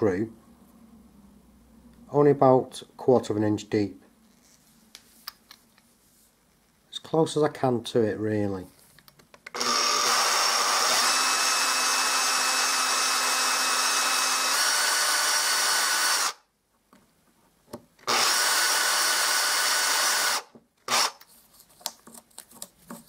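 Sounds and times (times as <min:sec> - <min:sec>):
power drill boring into wood: 0:09.5 - 0:16.4, 0:18.0 - 0:21.2.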